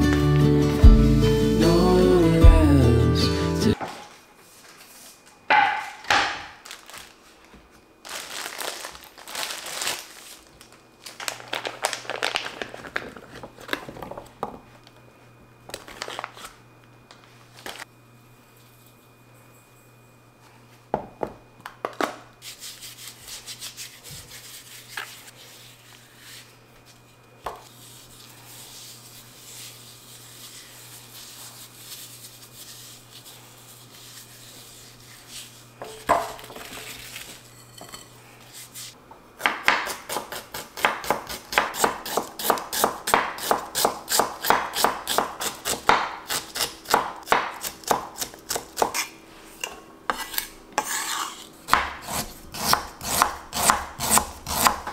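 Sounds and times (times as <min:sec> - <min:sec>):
knife chopping on cutting board: 0:39.4 - 0:49.1, 0:50.1 - 0:54.9.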